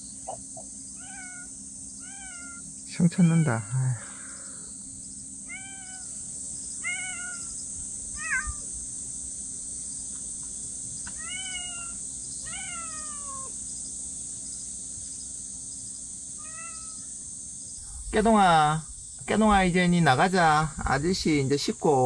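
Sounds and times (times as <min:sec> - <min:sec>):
cats meowing: 0:01.0 - 0:03.6, 0:05.5 - 0:06.1, 0:06.8 - 0:07.6, 0:08.2 - 0:08.7, 0:11.1 - 0:13.6, 0:16.4 - 0:17.1.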